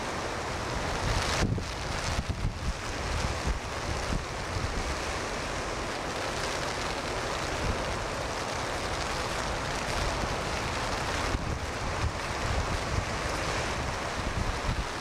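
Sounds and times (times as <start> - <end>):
rain: 0.0 - 15.0
storm wind: 0.0 - 15.0
surf: 0.0 - 15.0
wind buffeting microphone: 0.8 - 5.0, 9.8 - 15.0.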